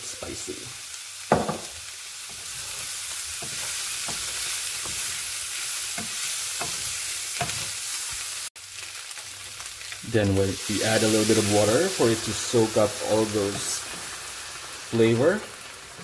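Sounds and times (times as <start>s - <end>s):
food sizzling in a frying pan: 0.0s - 16.0s
spatula scraping a pan: 2.2s - 8.2s.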